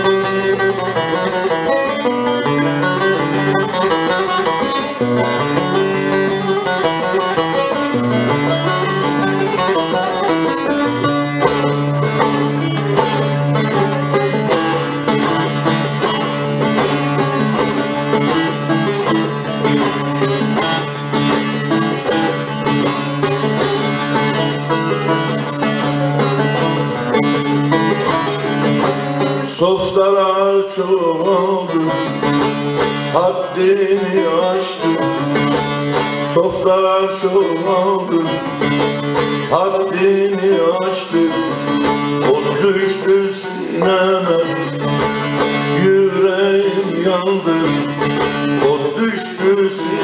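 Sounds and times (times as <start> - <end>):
plucked lute melody: 0.0 - 50.0.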